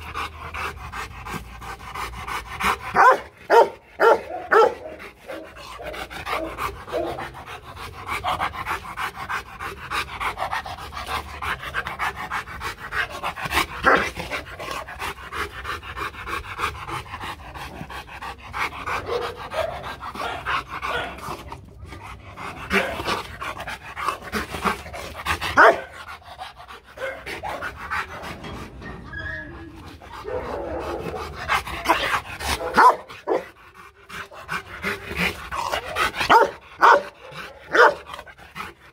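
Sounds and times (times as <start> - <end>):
dog panting hard: 0.0 - 29.0, 29.6 - 38.9
dog barking: 3.0 - 5.5, 19.1 - 21.1, 25.6 - 25.9, 32.6 - 33.4, 36.3 - 38.0.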